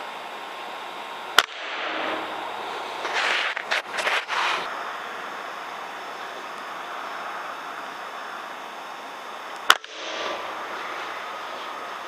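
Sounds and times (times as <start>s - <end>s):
rushing background noise: 0.0s - 12.0s
air rifle firing: 1.4s - 3.5s, 9.7s - 10.5s.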